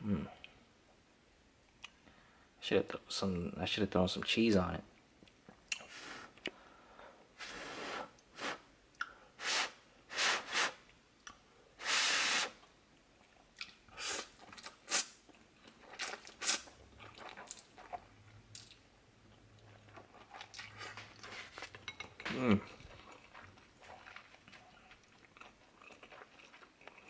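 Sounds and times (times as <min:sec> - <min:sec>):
person slurping noodles: 0:11.8 - 0:12.6, 0:14.0 - 0:15.1
person chewing: 0:12.6 - 0:27.0.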